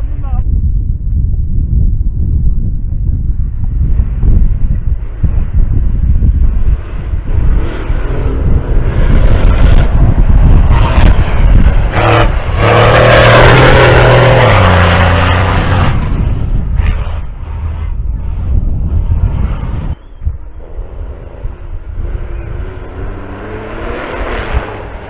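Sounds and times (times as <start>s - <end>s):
wind buffeting microphone: 0.0s - 25.0s
diesel truck passing at speed: 6.6s - 18.5s, 20.6s - 25.0s.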